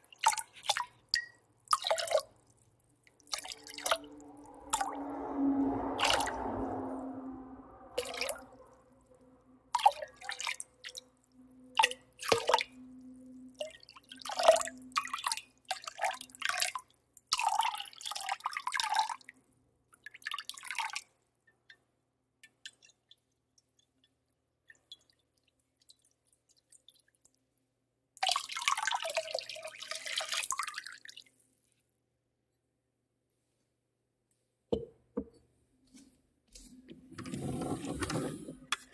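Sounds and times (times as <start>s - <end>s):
water dripping and splashing: 0.0s - 6.9s, 8.0s - 19.2s, 22.4s - 27.4s.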